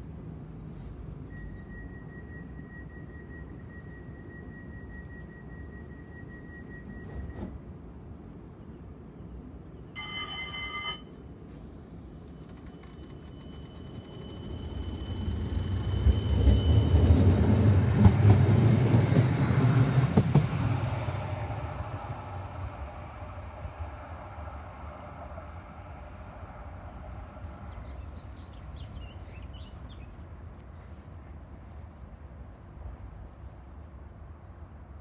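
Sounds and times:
tram wheels rumbling on rails: 9.8s - 30.5s.

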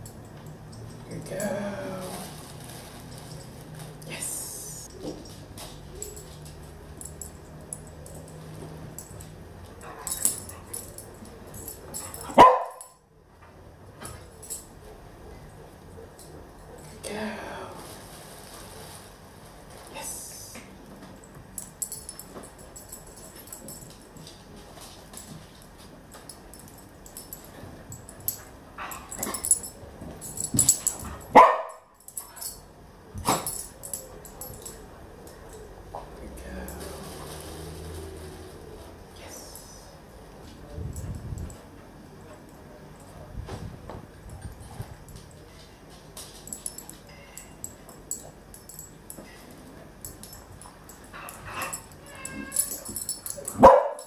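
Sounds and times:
dog barking: 12.2s - 13.0s, 31.3s - 31.8s, 53.6s - 54.0s.

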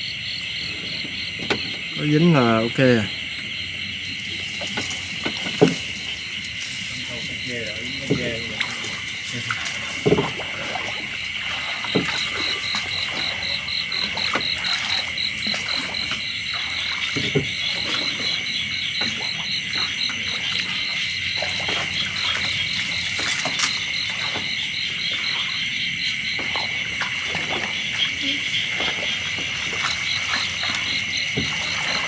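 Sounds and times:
insects buzzing: 0.0s - 32.0s.

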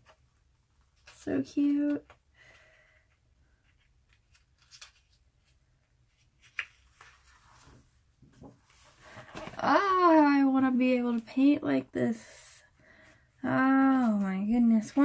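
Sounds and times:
book pages rustling: 3.5s - 9.8s.

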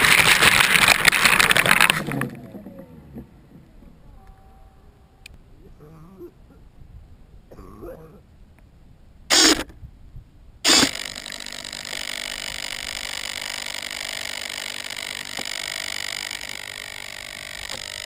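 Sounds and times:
model plane motor whine: 10.7s - 18.0s.

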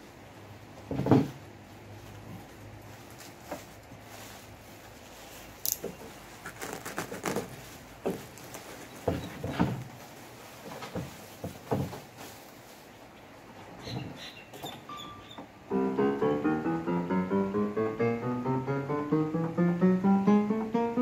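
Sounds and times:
bubble wrap crinkling: 1.8s - 13.1s.

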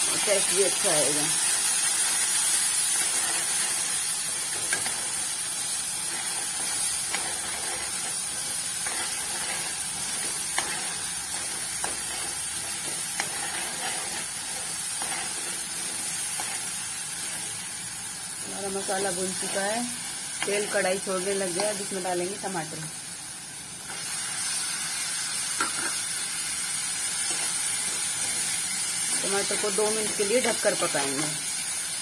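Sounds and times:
masala sizzling in hot oil: 0.0s - 32.0s
metal spatula scraping pan: 8.8s - 16.7s.

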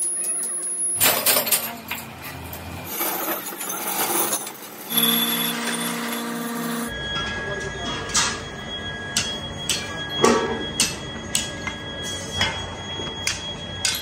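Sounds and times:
machine humming: 4.9s - 7.2s
metal clanking and knocking: 7.1s - 8.5s, 9.1s - 14.0s.

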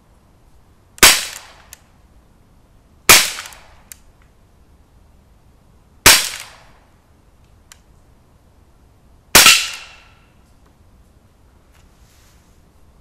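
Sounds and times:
faint click: 7.4s - 7.9s.

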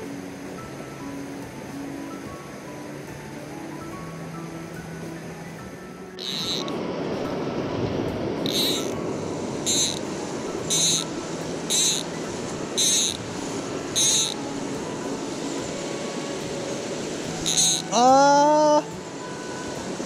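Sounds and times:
stream water rushing: 0.0s - 20.0s
fly reel ratchet buzzing: 6.2s - 6.7s, 8.4s - 9.0s, 9.6s - 14.6s, 17.4s - 18.8s.

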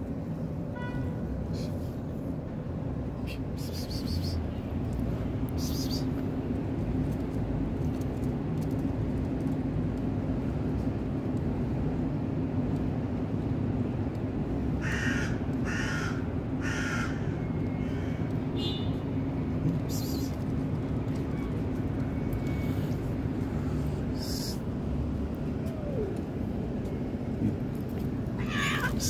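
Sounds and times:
crow cawing: 14.8s - 18.2s.

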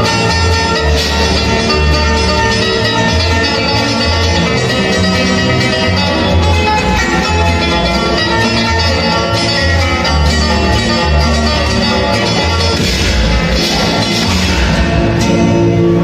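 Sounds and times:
country music with plucked strings: 0.0s - 16.0s
repeating bass line: 0.0s - 16.0s.

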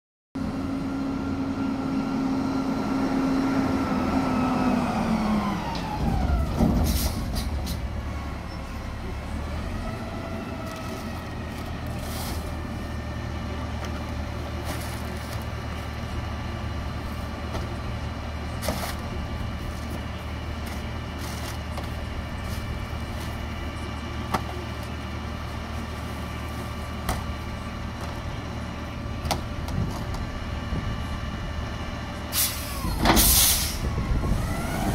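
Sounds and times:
garbage truck engine: 0.4s - 34.9s
air brake hiss: 32.3s - 33.9s.

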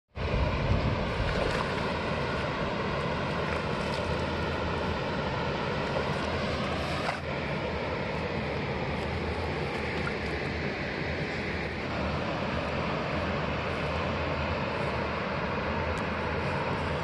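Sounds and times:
faint hum: 0.2s - 17.0s
steady rushing noise: 0.2s - 17.0s
fish splashing: 1.0s - 7.6s, 8.2s - 11.8s.

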